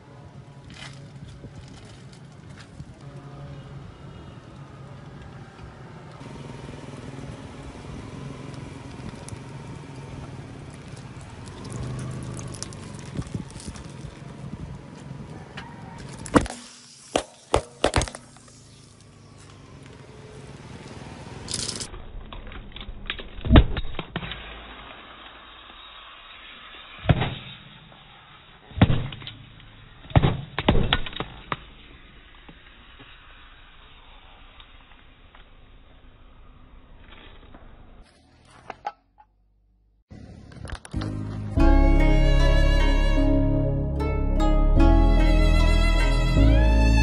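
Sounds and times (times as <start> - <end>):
lighters popping under tyre: 7.8 - 15.2, 16.0 - 38.1.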